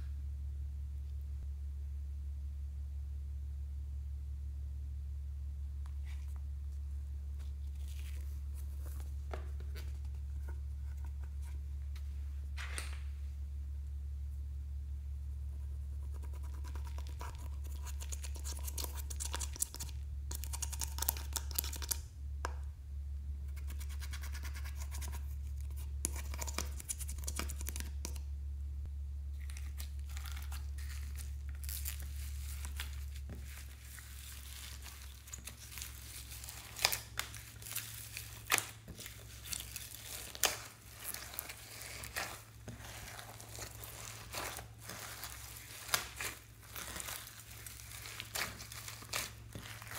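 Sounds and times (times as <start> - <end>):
steady low hum: 0.0 - 49.9
hands squishing sticky slime: 16.0 - 22.0, 29.4 - 49.9
plastic spatula scraping and tapping: 38.5 - 47.0, 48.0 - 49.9.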